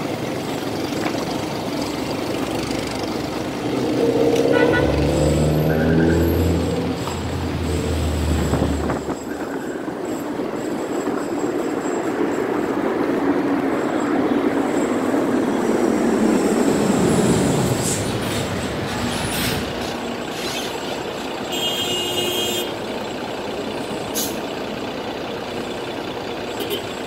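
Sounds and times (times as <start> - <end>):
vehicle engine and tyre noise: 0.0 - 27.0
short high squeaks: 17.9 - 21.0.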